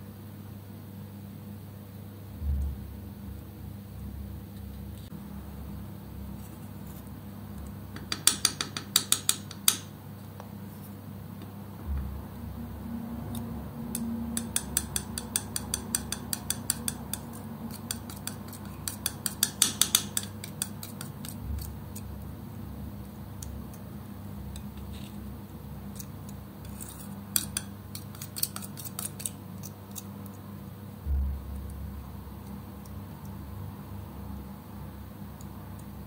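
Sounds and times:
palette knife clicking in wet paint: 13.3s - 22.0s, 26.7s - 30.4s.

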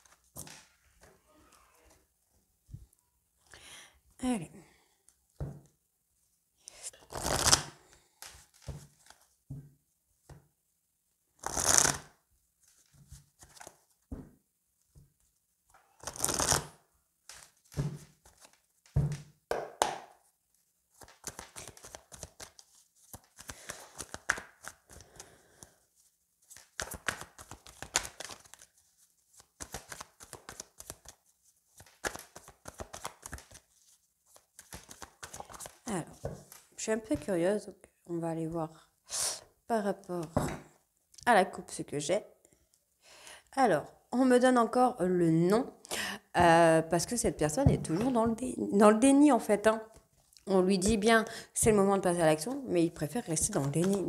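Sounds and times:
cards swishing: 7.0s - 9.2s, 11.4s - 12.1s, 21.0s - 25.0s, 26.5s - 36.6s
cards flicking and rustling: 7.1s - 9.3s, 11.4s - 12.1s, 16.0s - 16.7s, 17.3s - 20.1s, 20.9s - 25.0s, 26.4s - 36.7s, 53.4s - 54.0s.

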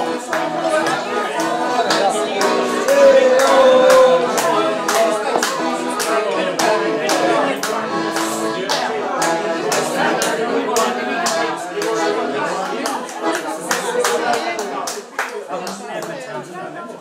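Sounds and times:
person singing: 0.0s - 12.4s.

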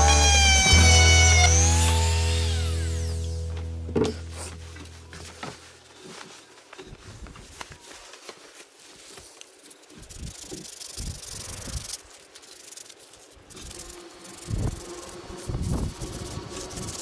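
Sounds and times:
rustling and handling noise: 3.5s - 14.8s.

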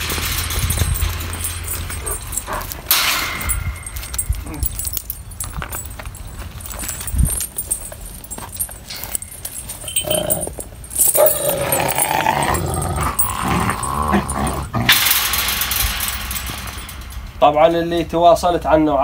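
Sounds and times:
wolf and dog growling: 1.9s - 3.5s, 9.8s - 15.1s.

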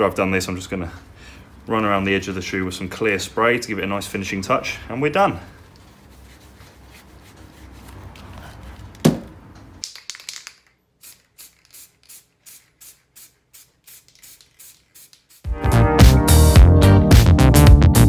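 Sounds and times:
knock: 9.0s - 9.3s
aerosol spray hissing: 11.0s - 15.5s
ticking music beat: 15.4s - 18.0s.

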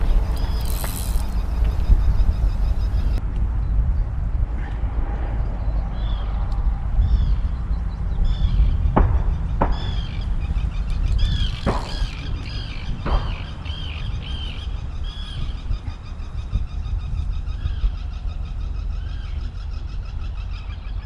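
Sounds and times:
sharp clicks: 0.0s - 2.0s, 10.9s - 13.4s
wind rumble on microphone: 0.0s - 21.0s.

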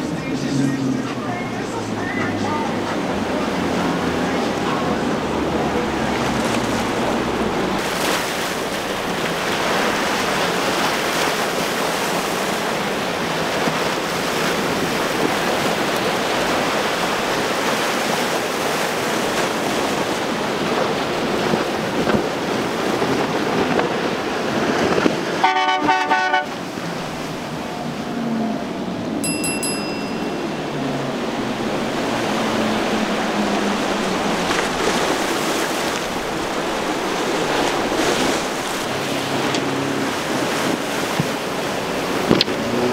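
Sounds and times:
outboard engines: 0.0s - 42.9s
wind: 0.0s - 42.9s.

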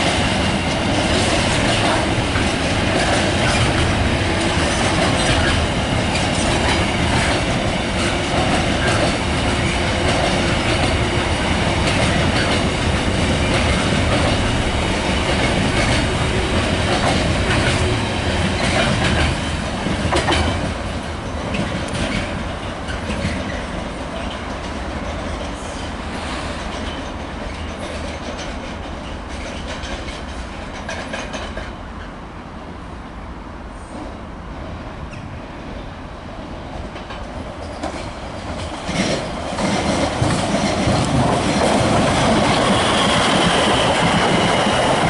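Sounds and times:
wheels clicking over rail joints: 0.1s - 25.6s.

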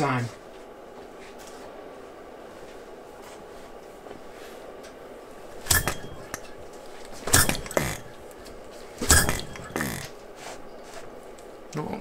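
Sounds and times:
engine turned over by hand: 7.2s - 8.2s.

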